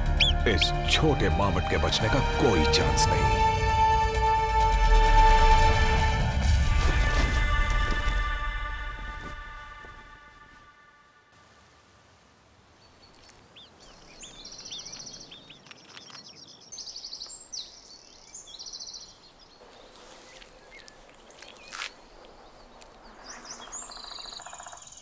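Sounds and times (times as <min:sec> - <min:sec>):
small birds chirping and trilling: 0:00.0 - 0:02.3, 0:12.7 - 0:25.0.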